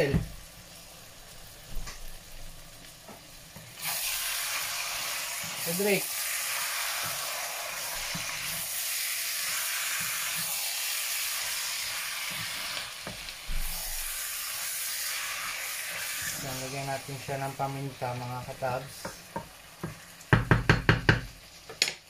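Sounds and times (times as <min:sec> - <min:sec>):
chicken and onions sizzling in pan: 0:00.0 - 0:22.0
wooden spatula knocking on pan: 0:19.0 - 0:21.9.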